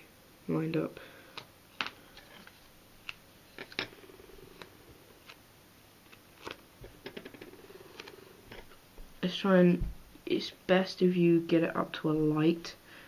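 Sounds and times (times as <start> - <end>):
sticker paper crinkling: 6.1 - 6.6.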